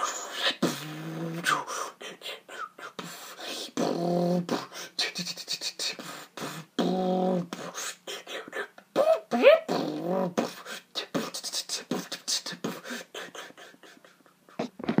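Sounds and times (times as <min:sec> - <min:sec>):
man beatboxing: 0:00.0 - 0:14.8.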